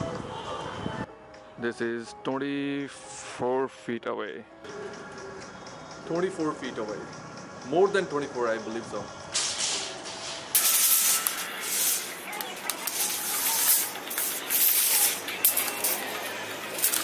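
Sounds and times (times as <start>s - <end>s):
clothing rubbing on microphone: 10.7s - 16.0s.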